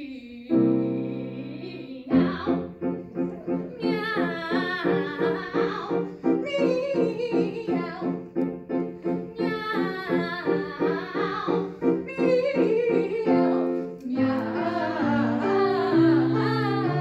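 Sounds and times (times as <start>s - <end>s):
woman singing operatic meows: 0.0s - 2.5s
repeated piano chords: 0.4s - 17.0s.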